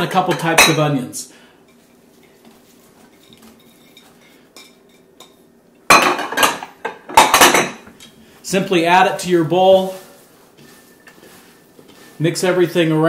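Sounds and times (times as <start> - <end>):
kitchenware clattering on table: 3.0 - 7.9.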